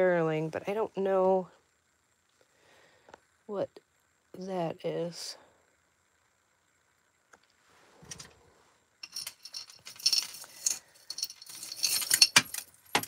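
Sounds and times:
soft rustle: 7.5s - 12.0s
jewelry jingling and clinking: 9.0s - 13.0s.

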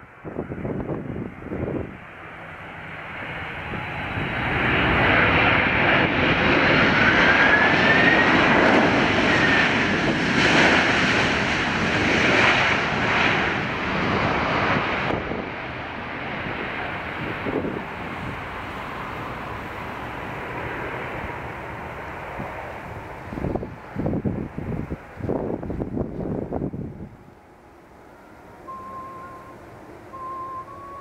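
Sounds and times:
wind buffeting microphone: 0.0s - 27.4s
jet engines roaring: 0.0s - 31.0s
thin whistling tone: 28.1s - 31.0s.

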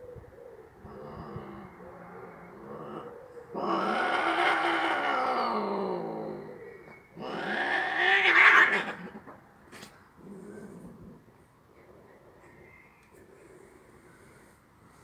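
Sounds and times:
cats yowling: 2.2s - 6.6s, 7.2s - 9.2s.

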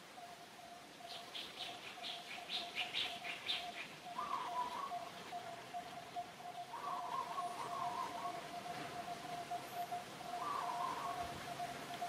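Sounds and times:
low warbling bird call: 2.5s - 12.0s.

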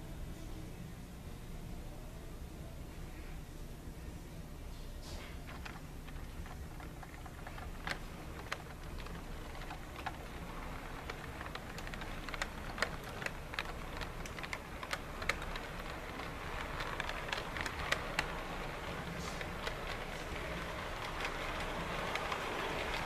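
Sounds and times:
low steady hum: 0.0s - 23.0s
model train wheels clicking: 5.4s - 23.0s.

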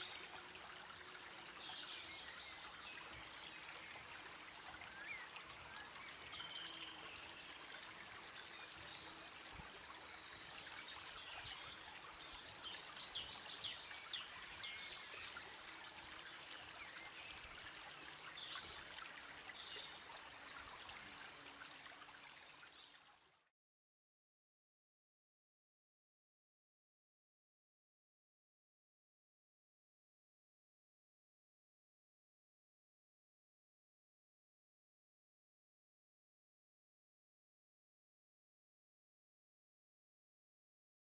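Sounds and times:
trickling stream: 0.0s - 23.5s.

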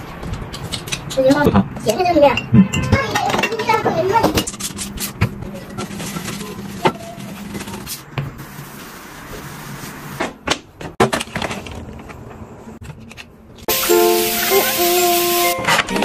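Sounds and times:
spray bottle spritzing: 13.7s - 16.0s.

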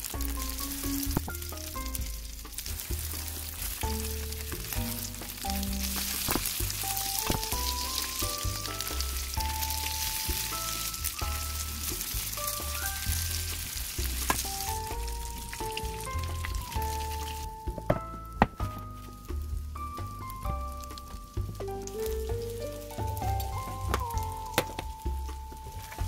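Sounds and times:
food sizzling in frying oil: 0.0s - 17.7s.

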